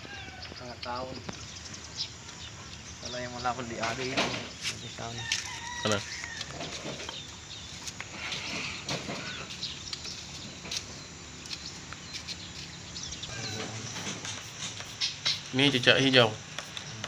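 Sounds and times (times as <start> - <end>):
steady background noise: 0.0 - 17.0
bird clucks and calls: 12.2 - 15.5.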